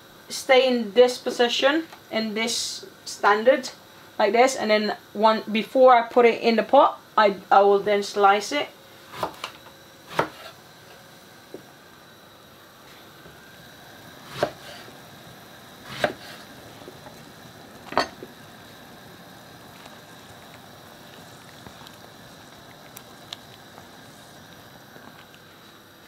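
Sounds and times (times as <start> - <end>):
knife chopping on wooden board: 9.2 - 10.5, 14.2 - 14.8, 15.8 - 16.4.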